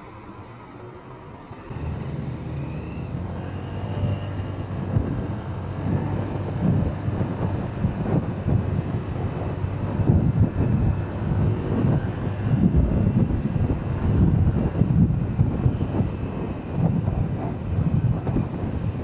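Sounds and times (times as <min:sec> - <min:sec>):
motorcycle engine pulling away: 0:01.5 - 0:19.0
wind gusts on microphone: 0:01.7 - 0:19.0.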